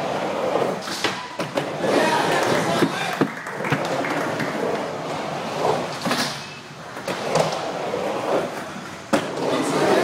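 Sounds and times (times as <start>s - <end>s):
skateboard wheels rolling on concrete: 0.0s - 10.0s
skateboard clacks: 0.7s - 6.2s.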